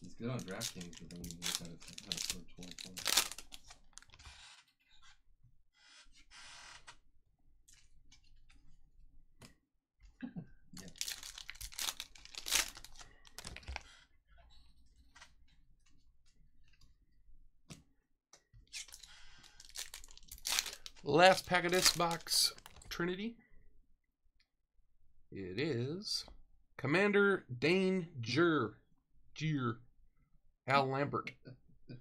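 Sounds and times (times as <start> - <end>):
foil packs crinkling and tearing: 0.3 - 4.1, 10.8 - 13.8, 18.8 - 22.8.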